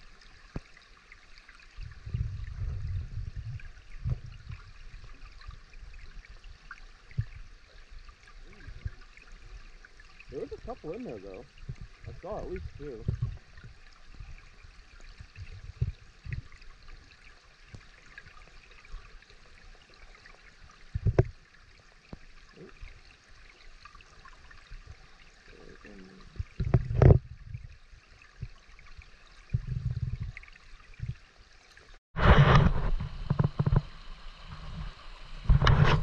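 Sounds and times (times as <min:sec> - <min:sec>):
dull low thumps: 0:01.8 - 0:04.8, 0:07.1 - 0:07.5, 0:11.6 - 0:14.4, 0:15.2 - 0:16.6, 0:29.5 - 0:30.4
stream babbling: 0:03.6 - 0:27.1.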